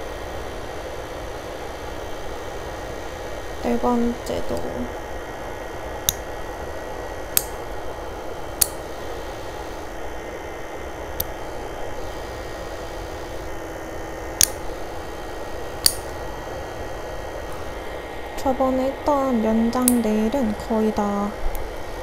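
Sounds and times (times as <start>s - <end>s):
nail dust collector whirring: 0.0s - 22.0s
nail clipper clicks: 6.0s - 6.3s, 7.3s - 7.6s, 8.6s - 8.8s, 14.4s - 14.6s, 15.8s - 16.2s, 19.7s - 20.0s.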